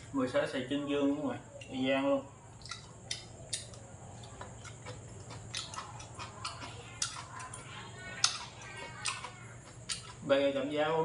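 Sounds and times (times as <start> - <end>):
chewing: 2.5 - 10.6
chopsticks clicking on bowls: 2.6 - 10.2.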